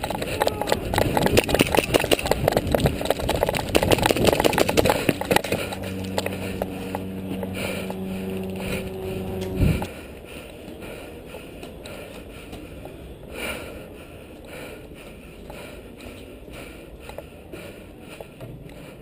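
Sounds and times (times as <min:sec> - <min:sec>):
gear rattling: 0:00.0 - 0:09.9
quick footsteps on dirt: 0:00.0 - 0:19.0
steady mechanical hum: 0:00.0 - 0:19.0.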